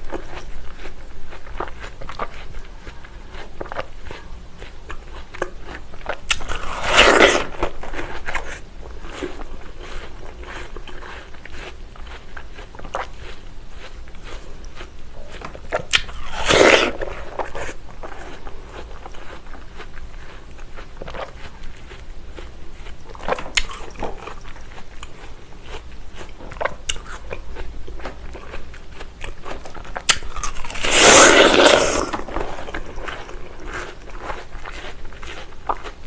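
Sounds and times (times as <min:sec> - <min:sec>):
chewing: 0:00.0 - 0:36.0
biting into watermelon: 0:04.9 - 0:08.6, 0:14.4 - 0:19.9, 0:28.0 - 0:36.0.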